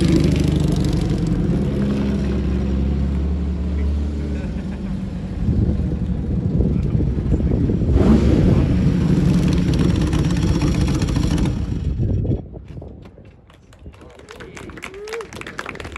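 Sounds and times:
car engine running: 0.0 - 12.2.

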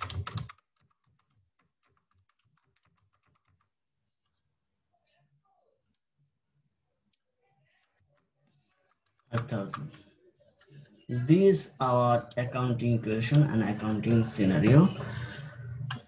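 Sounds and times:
computer keyboard typing: 0.0 - 3.8, 7.8 - 10.0.

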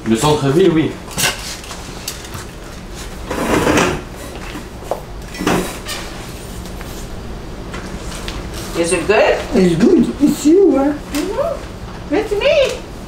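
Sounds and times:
household handling noises: 1.1 - 9.6.

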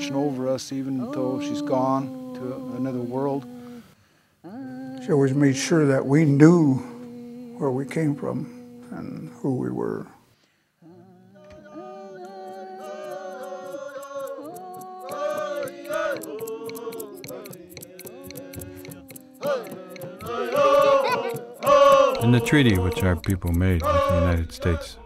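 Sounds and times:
group singing a chant: 0.0 - 9.5, 10.8 - 25.0
hand drum beat: 12.4 - 24.8.

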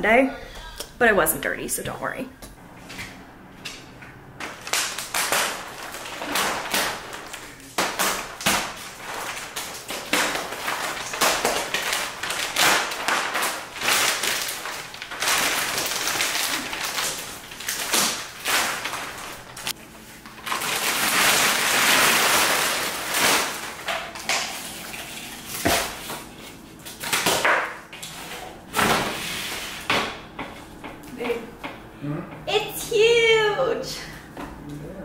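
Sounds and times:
plastic wrap and cardboard rustling: 4.4 - 29.9.

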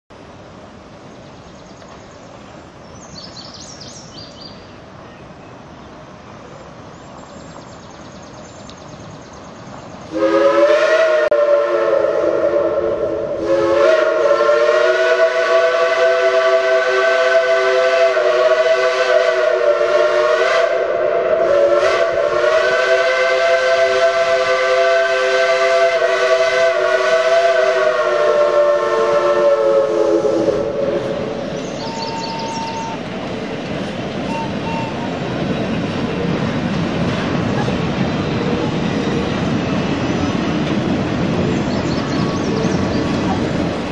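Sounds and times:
faint train working noise: 0.1 - 43.9
steam locomotive whistle blowing: 10.1 - 33.1, 34.2 - 35.2.

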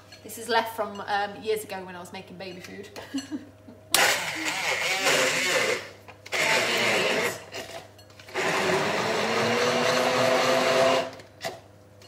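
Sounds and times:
stick blender whizzing: 4.0 - 7.5, 8.3 - 11.2.

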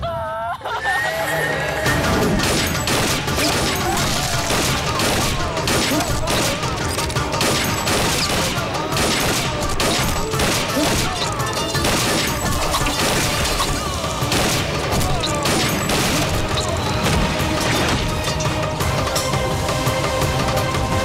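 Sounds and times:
dramatic background music: 0.7 - 21.0
pistol gunshots: 2.3 - 18.2.

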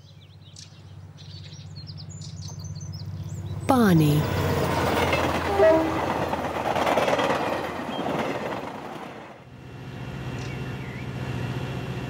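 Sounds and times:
train rushing rumble: 4.1 - 12.0.

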